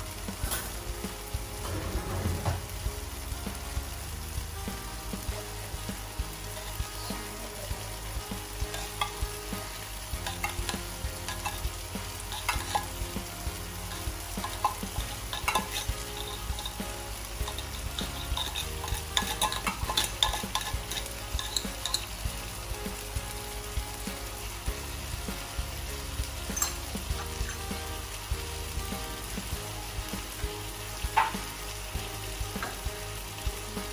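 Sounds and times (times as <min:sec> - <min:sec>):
food sizzling in frying pan: 0:00.0 - 0:33.9
metal spoon scraping tin can: 0:13.9 - 0:22.1.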